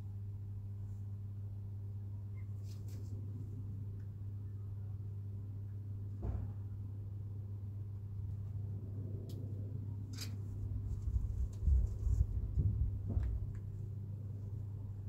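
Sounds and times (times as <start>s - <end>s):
steady low hum: 0.0s - 15.0s
low bumps: 10.5s - 13.6s.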